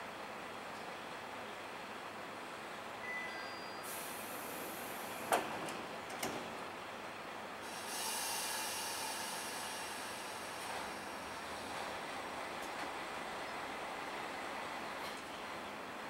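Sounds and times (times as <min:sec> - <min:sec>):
compressed air hissing: 0:07.6 - 0:12.0.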